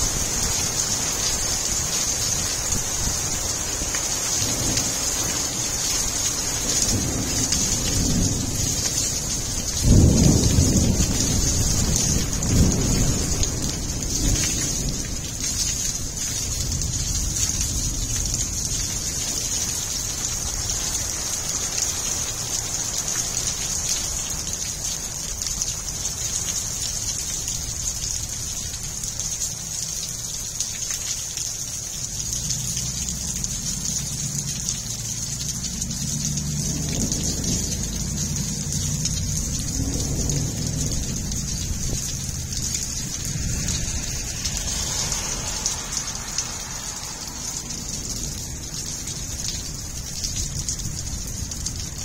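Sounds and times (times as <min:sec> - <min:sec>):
heavy rain on gravel: 0:00.0 - 0:52.0
low rumble: 0:32.2 - 0:49.9.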